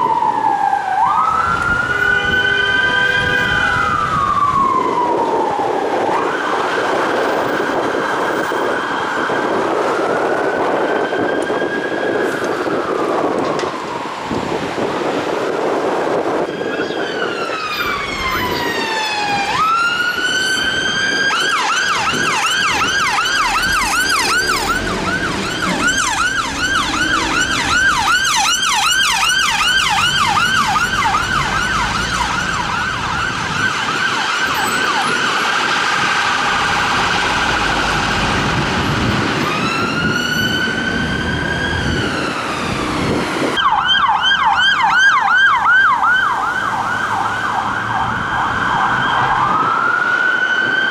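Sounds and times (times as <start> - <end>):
ambulance siren wail and yelp: 0.0 - 50.9
police siren yelp: 0.0 - 50.9
traffic noise: 0.0 - 50.9.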